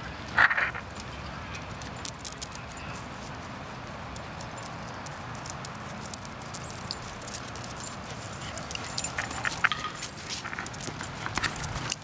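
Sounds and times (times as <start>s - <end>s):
paws pattering on dry leaves: 0.0s - 12.0s.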